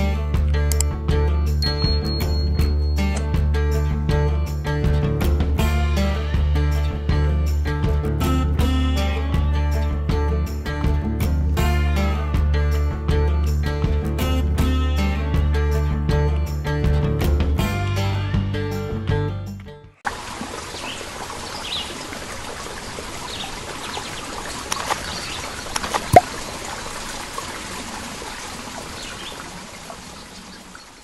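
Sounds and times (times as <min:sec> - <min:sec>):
song with strummed guitar: 0:00.0 - 0:19.8
running water rushing: 0:20.0 - 0:31.0
faint bird chirps: 0:30.1 - 0:31.0.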